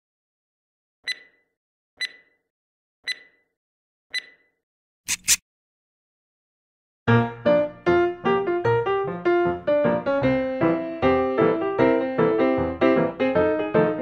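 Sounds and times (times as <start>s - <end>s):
short clicky blips: 1.0s - 2.4s, 3.0s - 3.5s, 4.1s - 5.4s
quick noisy swishes: 5.1s - 5.4s.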